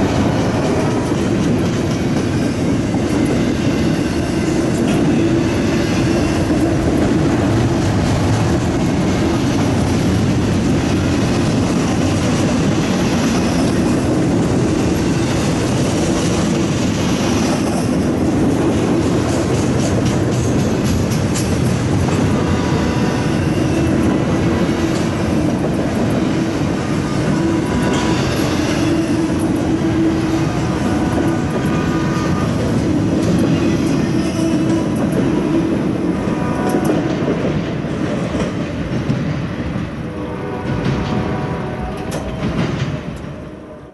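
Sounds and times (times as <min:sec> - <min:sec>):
freight train rolling past: 0:00.0 - 0:43.9
wheels clicking over rail joints: 0:00.1 - 0:39.3.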